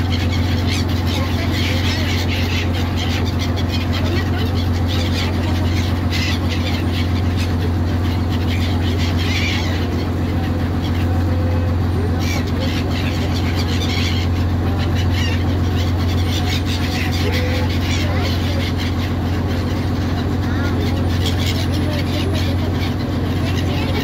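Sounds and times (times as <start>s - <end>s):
boat engine droning: 0.0s - 24.0s.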